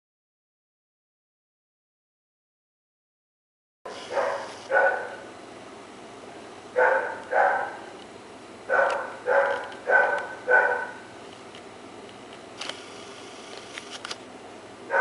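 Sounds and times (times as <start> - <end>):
dog barking: 3.9 - 5.2, 6.8 - 7.9, 8.7 - 11.1.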